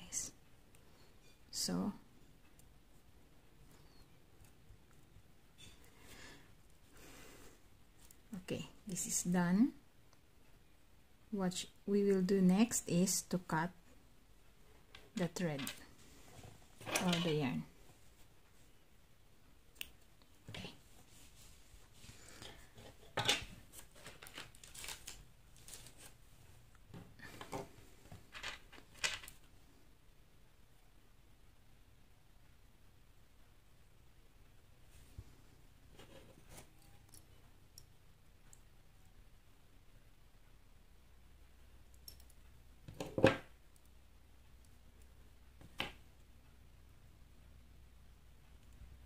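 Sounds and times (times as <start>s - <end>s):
handling rustle: 20.9s - 26.2s.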